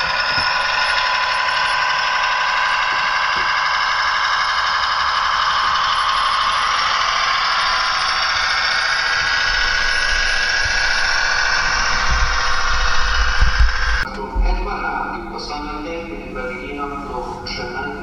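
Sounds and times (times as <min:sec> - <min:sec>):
model train wheels squealing: 0:00.0 - 0:14.0
low rumbling: 0:00.0 - 0:18.0.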